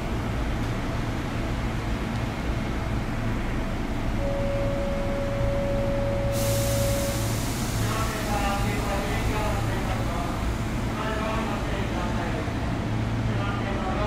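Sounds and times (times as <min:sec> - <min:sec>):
train car hum and rumble: 0:00.0 - 0:14.0
steady mid-pitched tone: 0:04.2 - 0:07.3
hiss: 0:06.3 - 0:09.1.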